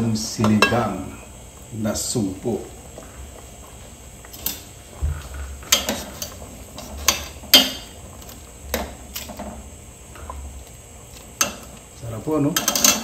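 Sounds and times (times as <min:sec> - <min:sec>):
metal tongs clinking on pot: 0:00.4 - 0:01.0, 0:07.0 - 0:07.9, 0:11.4 - 0:11.8, 0:12.5 - 0:13.0.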